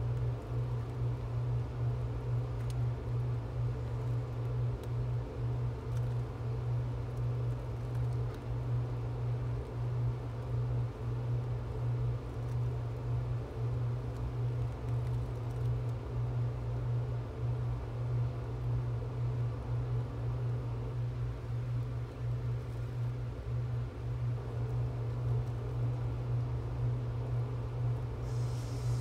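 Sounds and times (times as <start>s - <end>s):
steady low hum: 0.0s - 29.0s
faint hiss: 28.2s - 29.0s.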